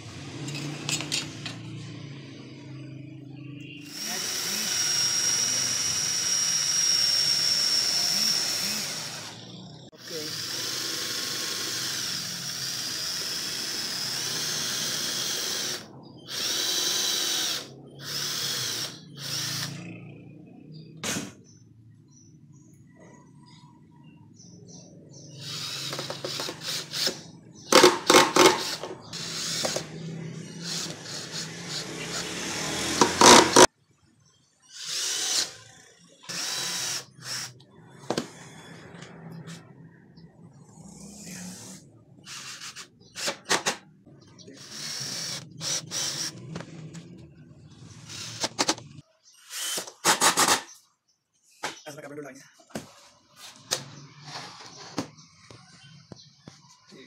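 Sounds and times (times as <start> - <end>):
cordless drill running: 3.8 - 19.8, 25.4 - 33.7, 34.7 - 35.6, 36.3 - 37.6, 42.3 - 43.4, 44.6 - 46.4, 48.1 - 48.6, 49.5 - 50.6.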